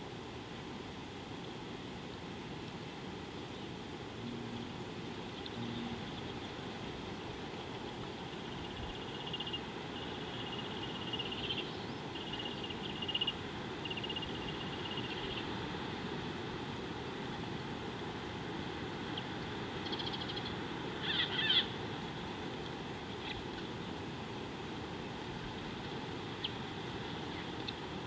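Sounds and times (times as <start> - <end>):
steady low rush: 3.9 - 11.1.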